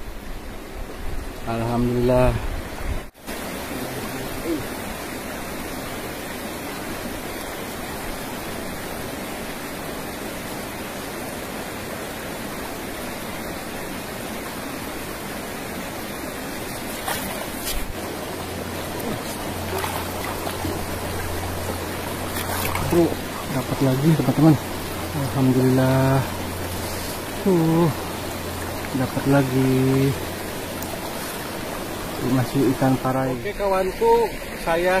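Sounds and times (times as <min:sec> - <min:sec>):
river water over stones: 0:00.0 - 0:35.0
low hum: 0:17.9 - 0:32.3.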